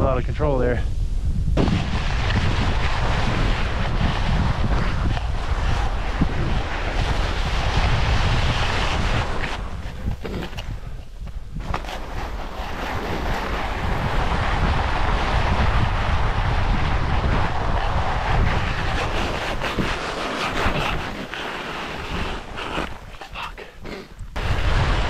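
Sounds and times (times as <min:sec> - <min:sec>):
wind buffeting microphone: 0:00.0 - 0:25.0
sliding on snow hiss: 0:01.6 - 0:25.0.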